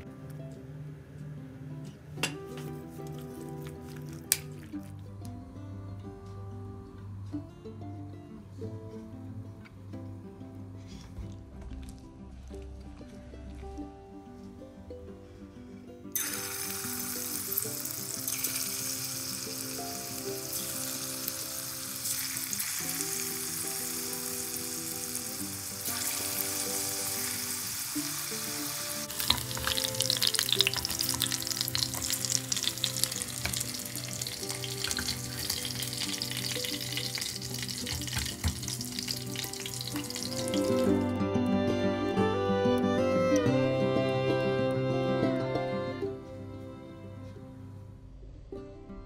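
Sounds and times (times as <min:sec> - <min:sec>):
background music: 0:00.0 - 0:49.0
chicken frying in hot oil: 0:16.2 - 0:40.9.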